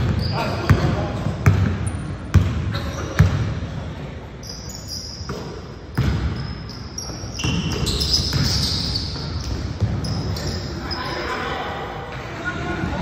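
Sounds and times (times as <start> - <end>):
basketball bouncing on gym floor: 0.0 - 3.6, 5.2 - 10.2.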